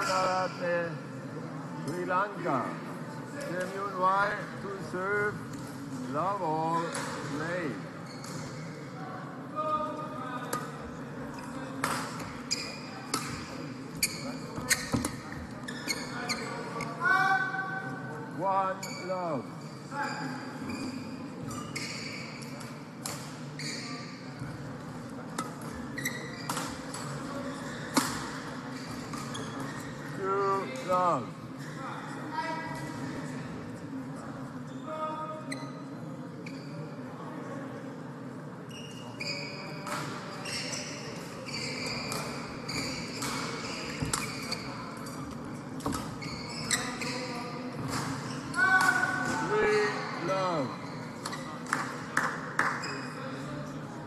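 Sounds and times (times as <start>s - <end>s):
shoes squeaking on court floor: 6.6s - 8.8s, 11.4s - 17.0s, 18.7s - 24.7s, 25.3s - 31.8s, 34.7s - 37.0s, 38.7s - 51.7s, 52.6s - 53.4s.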